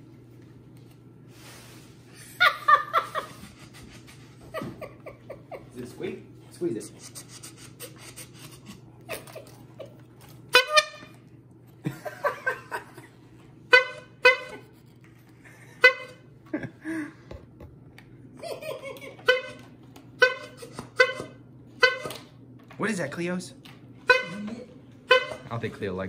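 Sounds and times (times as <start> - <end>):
people laughing: 2.2 - 6.0, 11.8 - 13.2, 18.4 - 19.3
squeeze horn honking: 10.5 - 11.3, 13.7 - 14.8, 15.8 - 16.3, 19.2 - 22.3, 24.0 - 25.6.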